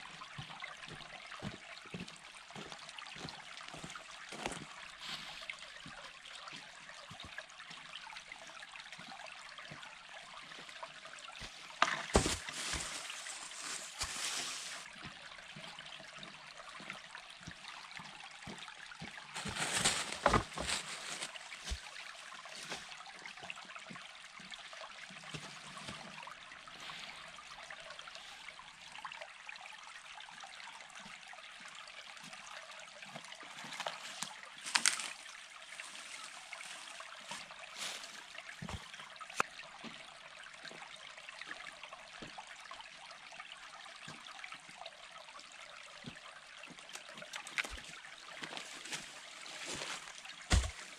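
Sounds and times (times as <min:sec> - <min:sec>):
creek trickling over gravel: 0:00.0 - 0:50.9
footsteps on stones: 0:11.4 - 0:14.9, 0:19.4 - 0:22.0, 0:33.6 - 0:35.2, 0:47.3 - 0:50.9
branches cracking and scraping: 0:11.6 - 0:14.9, 0:19.4 - 0:21.9, 0:33.7 - 0:35.2, 0:48.4 - 0:50.9.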